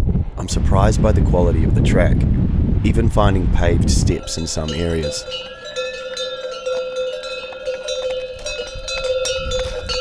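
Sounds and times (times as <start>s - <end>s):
animal bells clanking: 4.1s - 10.0s.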